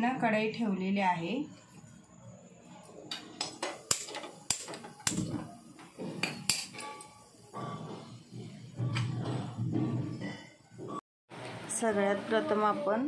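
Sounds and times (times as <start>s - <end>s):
gas burner rumble: 3.0s - 10.2s.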